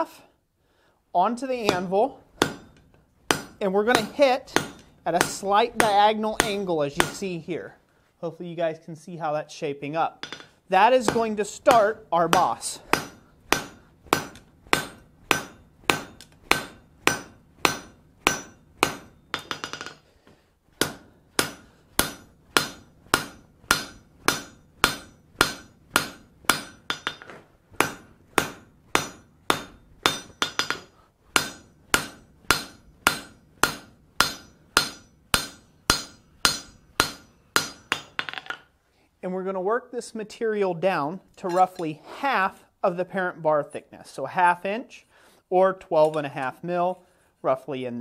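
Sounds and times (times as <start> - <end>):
hammer striking metal on anvil: 1.6 - 7.3, 10.2 - 20.0, 20.8 - 38.6.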